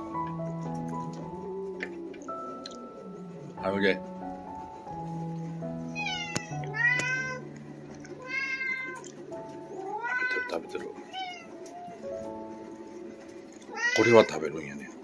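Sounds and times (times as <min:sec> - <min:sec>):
soft background music: 0:00.0 - 0:15.0
cat meowing: 0:05.9 - 0:07.5, 0:08.1 - 0:09.1, 0:09.8 - 0:12.0, 0:13.7 - 0:14.6.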